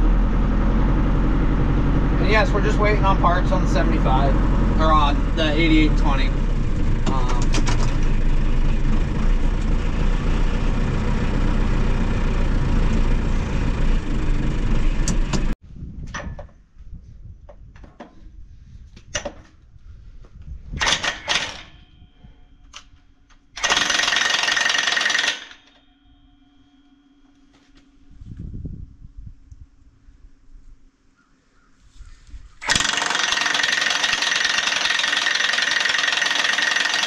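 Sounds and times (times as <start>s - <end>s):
impact wrench hammering: 20.8s - 21.8s, 23.6s - 25.8s, 32.6s - 37.0s.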